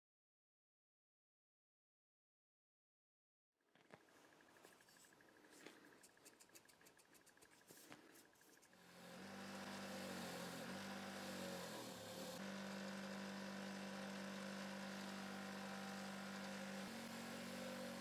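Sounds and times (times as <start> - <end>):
bench grinder humming: 4.2 - 18.0.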